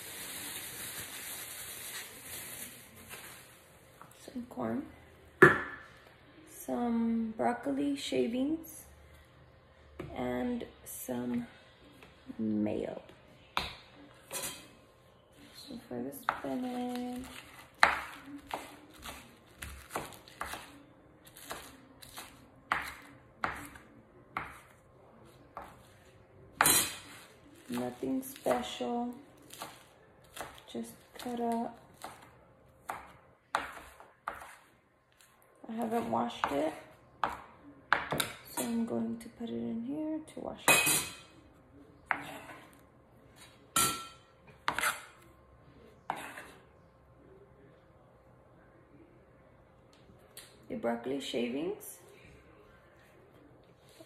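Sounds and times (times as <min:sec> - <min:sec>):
knife chopping on wooden board: 0:32.9 - 0:34.6.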